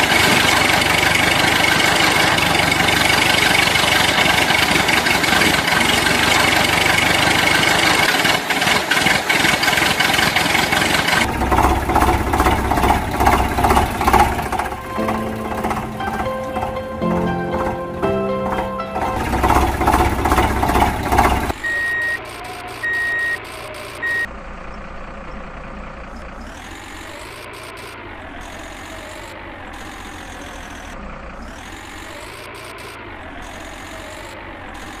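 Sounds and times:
truck engine running: 0.0s - 22.9s, 23.5s - 35.0s
loud rough noise: 10.8s - 21.6s
reversing beeps: 21.6s - 24.3s.

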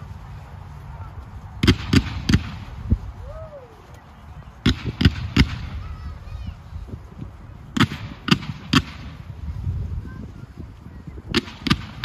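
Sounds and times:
fireworks bangs: 1.6s - 3.1s, 4.6s - 6.6s, 7.7s - 9.6s, 11.1s - 12.0s.

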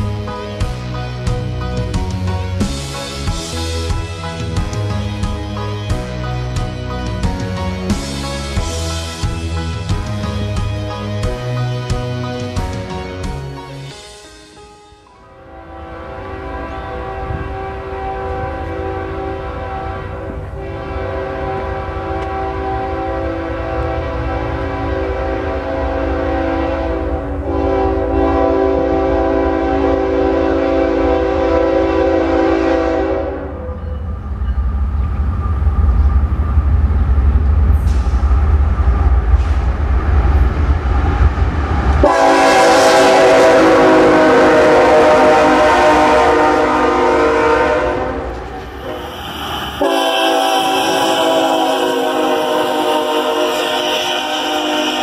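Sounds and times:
locomotive air horn: 15.3s - 33.7s, 42.0s - 55.0s.

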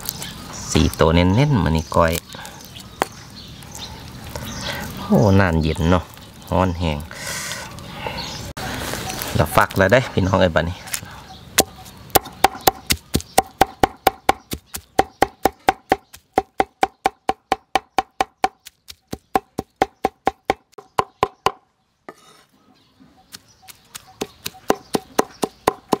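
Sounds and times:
knife chopping on a board: 11.6s - 22.3s, 23.3s - 26.0s.

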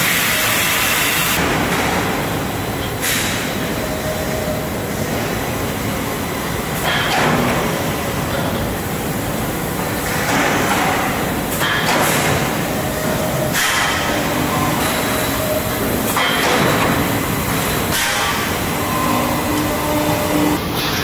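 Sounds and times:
production line mechanical din: 0.0s - 21.0s.

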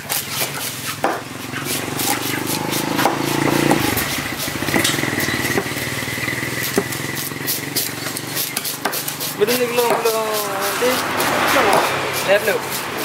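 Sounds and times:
knife chopping fish on wood: 0.0s - 5.8s, 6.6s - 13.0s
motor engine running: 1.2s - 10.0s.

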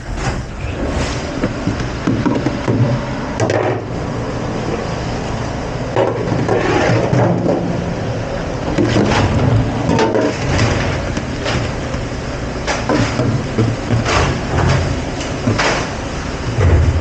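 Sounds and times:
low hum of kitchen machinery: 0.0s - 17.0s.

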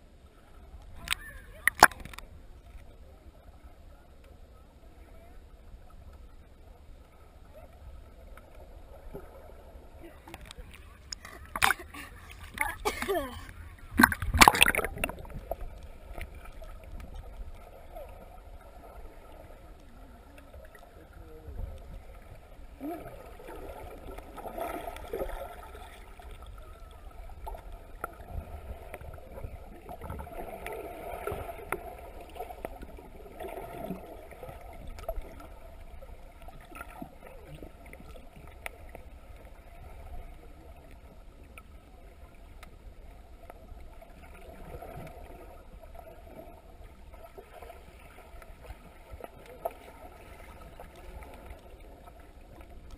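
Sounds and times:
muffled underwater water movement: 0.0s - 52.9s
underwater bubbling: 0.0s - 52.9s
splash into water: 13.9s - 15.3s.

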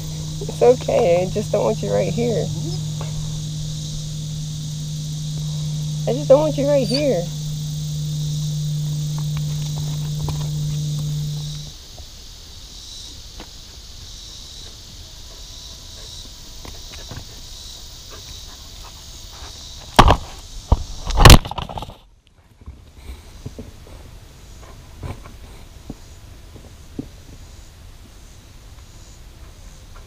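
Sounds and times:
high-pitched insect buzz: 0.0s - 11.8s.

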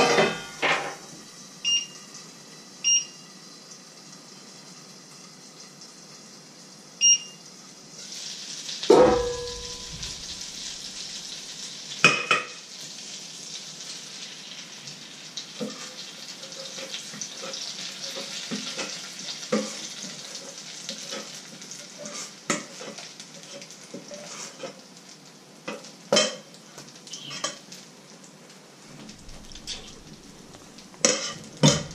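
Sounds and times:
metal clanks of pan and ladle: 0.0s - 1.0s, 8.9s - 10.8s, 12.0s - 12.6s, 25.7s - 26.5s, 29.1s - 31.9s
batter sizzling in a frying pan: 0.0s - 31.9s.

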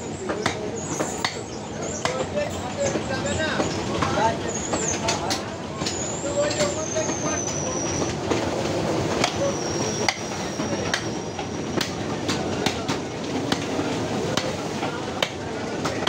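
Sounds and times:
faint background voices: 0.0s - 16.0s
cleavers chopping on wooden blocks: 0.3s - 1.4s, 2.0s - 2.3s.

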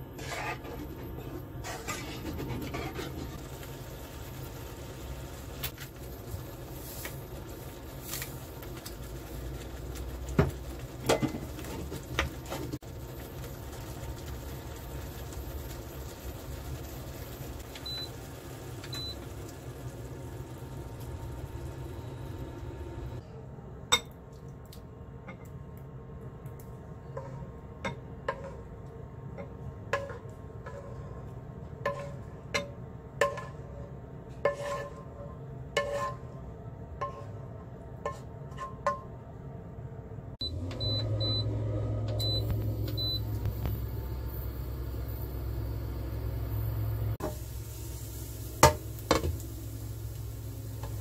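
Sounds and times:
sauce simmering hiss: 0.0s - 23.2s, 42.3s - 51.0s
wooden spatula knocking and scraping: 34.4s - 35.1s.

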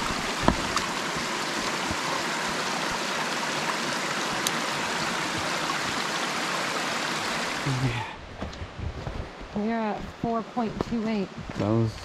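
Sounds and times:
creek running over rocks: 0.0s - 8.0s.

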